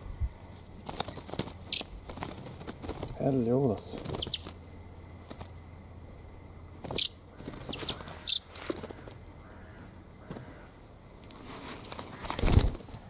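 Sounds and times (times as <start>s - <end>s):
songbird shrill calls: 4.0s - 4.6s, 6.9s - 8.5s
faint bird squeaks: 4.1s - 4.5s, 6.9s - 8.5s.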